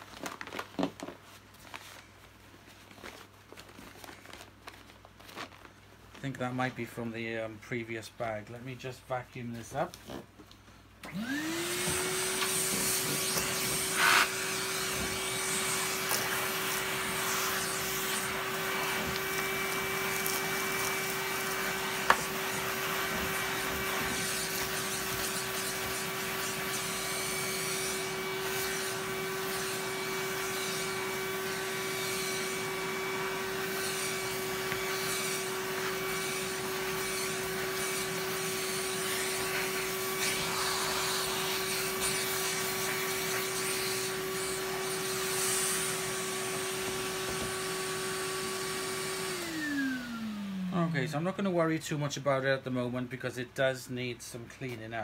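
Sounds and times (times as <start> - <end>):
vacuum cleaner motor whining: 11.0 - 51.2.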